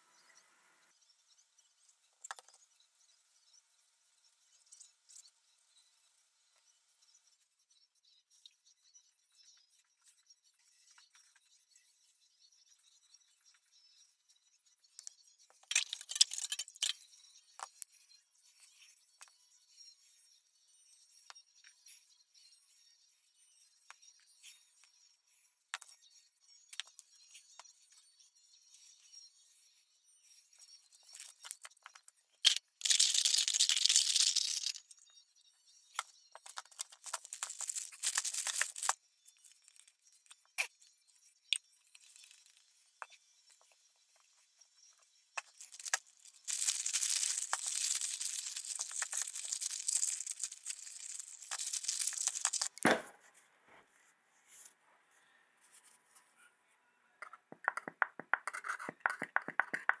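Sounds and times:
plastic bag crinkling: 36.5s - 39.0s, 45.6s - 52.8s.

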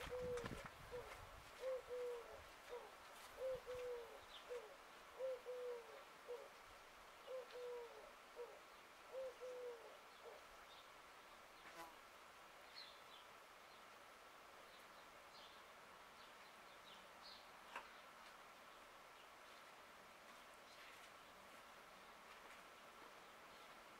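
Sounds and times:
dove cooing: 0.0s - 6.6s, 7.2s - 10.4s.

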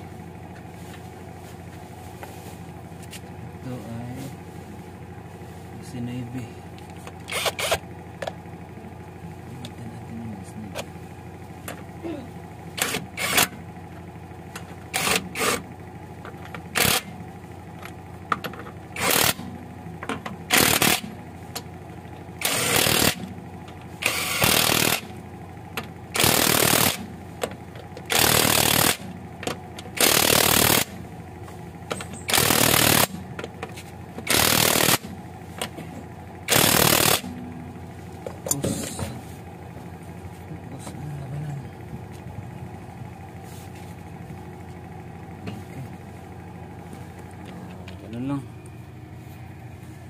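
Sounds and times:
impact wrench hammering: 7.3s - 7.8s, 12.8s - 13.6s, 14.9s - 15.6s, 18.3s - 21.2s, 22.4s - 23.3s, 24.0s - 25.2s, 26.1s - 31.0s, 31.9s - 33.6s, 34.2s - 35.8s, 36.5s - 37.4s.

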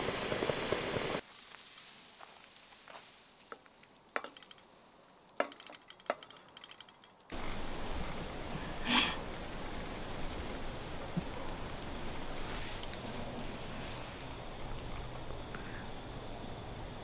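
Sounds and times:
steady background hiss: 0.0s - 17.0s
light clinks and taps: 4.2s - 4.7s, 5.4s - 7.3s.

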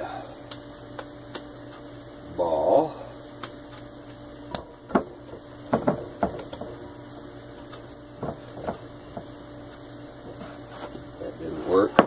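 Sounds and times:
dough knocking on glass bowl: 4.8s - 7.0s, 8.2s - 9.4s.

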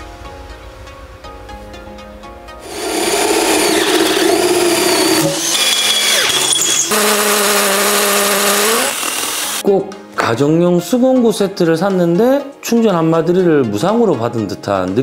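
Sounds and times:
cordless drill boring: 2.6s - 9.6s.

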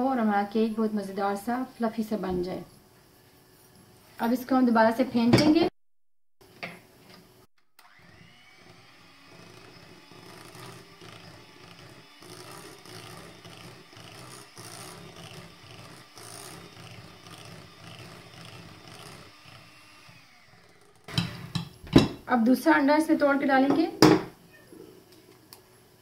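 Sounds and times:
electric hand mixer running: 7.6s - 22.2s.

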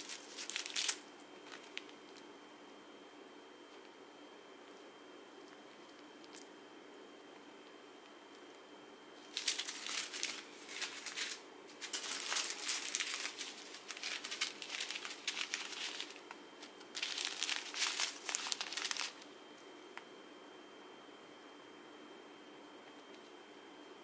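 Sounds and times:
plastic bags crinkling: 0.0s - 2.2s, 9.2s - 19.3s
small beads shifting in bag: 9.3s - 19.2s.

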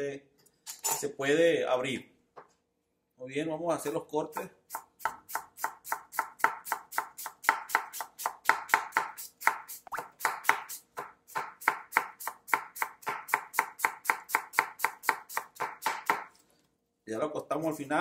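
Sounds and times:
knife slicing onion on board: 4.3s - 16.4s.

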